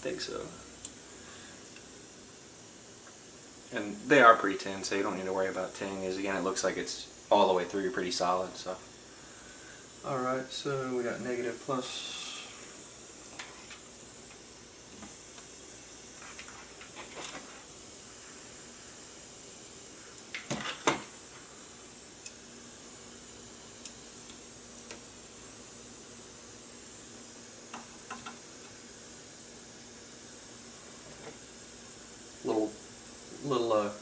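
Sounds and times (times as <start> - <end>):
background hiss: 0.0 - 34.0
tools and wires rustling: 16.1 - 17.8.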